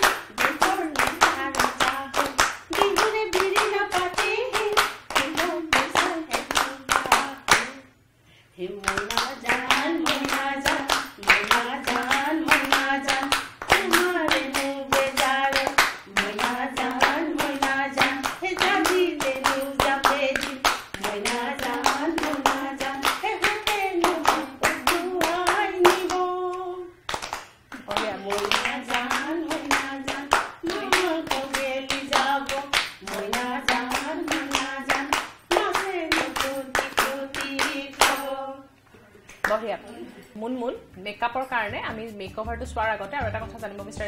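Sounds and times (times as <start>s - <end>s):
people clapping in time: 0.0s - 7.7s, 8.8s - 26.3s, 27.1s - 38.3s
women singing: 0.0s - 8.0s, 8.6s - 27.0s, 27.8s - 38.8s
person singing: 27.8s - 34.8s.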